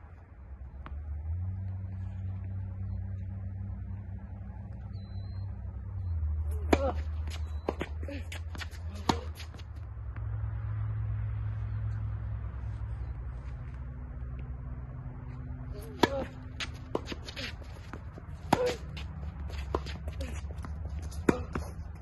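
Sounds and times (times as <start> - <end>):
steady low rumble: 0.0 - 22.0
tennis ball struck with racket: 8.5 - 9.6, 15.8 - 20.4, 21.1 - 21.7.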